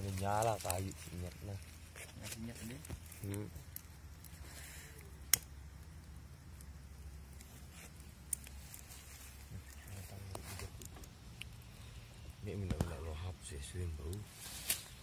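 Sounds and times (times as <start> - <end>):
leaves rustling and crackling: 0.0 - 15.0
low steady rumble: 0.0 - 15.0.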